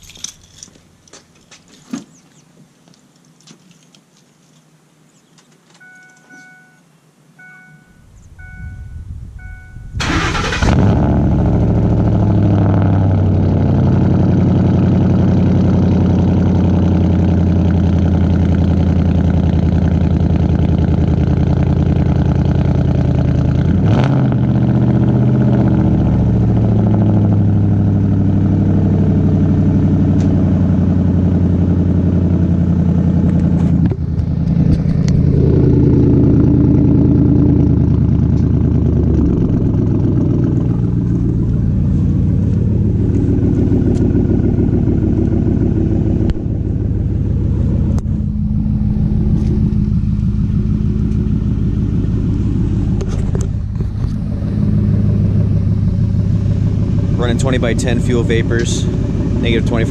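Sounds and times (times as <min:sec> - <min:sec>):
loud engine idling: 0:07.7 - 0:23.7, 0:24.6 - 0:59.9
engine cranking and starting: 0:09.4 - 0:12.2.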